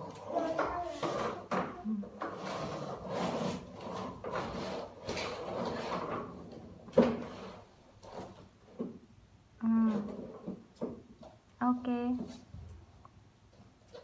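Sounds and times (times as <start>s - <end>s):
plastic toy scraping on wooden floor: 0.0s - 9.0s.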